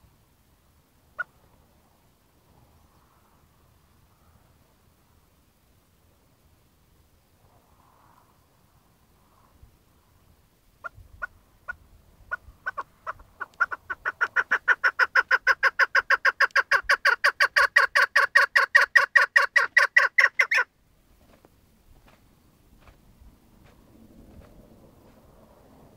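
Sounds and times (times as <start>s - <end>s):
partridge calling: 10.8s - 20.7s.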